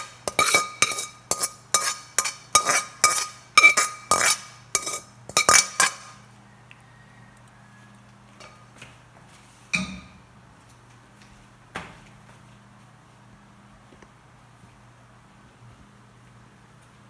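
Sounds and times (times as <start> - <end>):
metal spoon scraping frying pan: 0.0 - 6.2.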